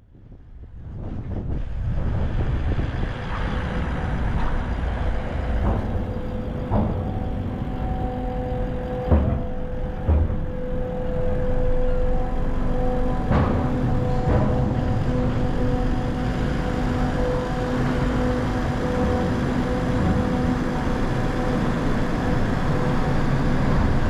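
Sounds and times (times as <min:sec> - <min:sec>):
vehicle engine and road rumble: 0:00.0 - 0:24.0
two-note hum: 0:04.0 - 0:24.0
sharp knocks on loading ramp: 0:05.6 - 0:07.6.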